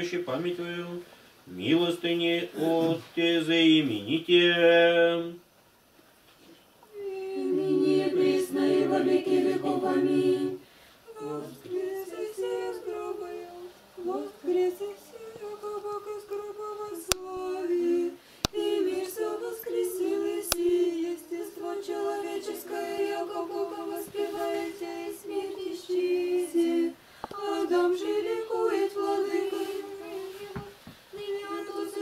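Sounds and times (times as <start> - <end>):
woman chanting: 11.1 - 32.0.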